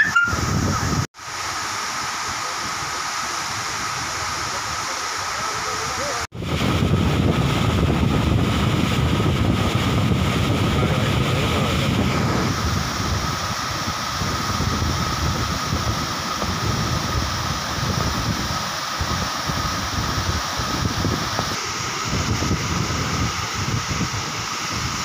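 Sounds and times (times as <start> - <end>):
water rushing over dam spillway: 0.0 - 25.0
wind buffeting microphone: 0.3 - 1.1, 6.3 - 25.0.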